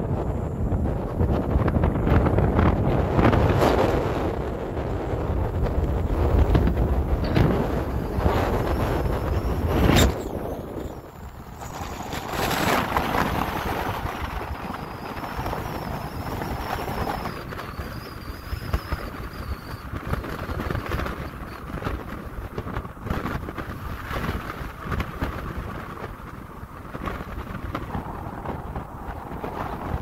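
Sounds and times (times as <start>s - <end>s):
wavering high whine: 0.0s - 21.6s
wind buffeting microphone: 0.0s - 30.0s
car driving rumble: 4.3s - 18.6s.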